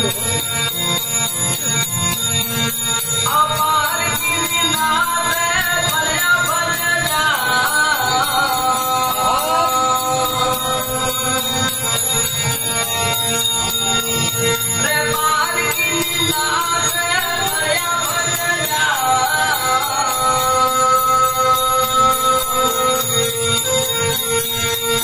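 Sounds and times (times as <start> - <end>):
man singing: 3.2 - 12.2, 14.8 - 23.4.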